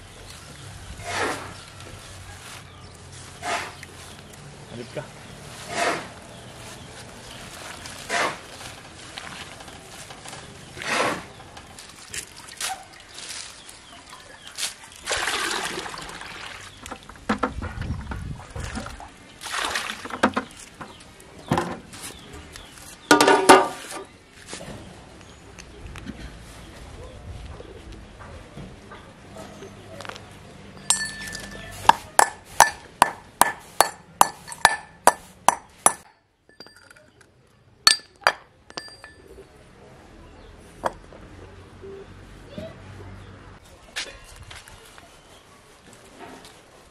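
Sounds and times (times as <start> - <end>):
water splashing into metal pot: 15.0 - 16.7
pestle clinking in metal bowl: 30.8 - 36.9, 37.9 - 39.3.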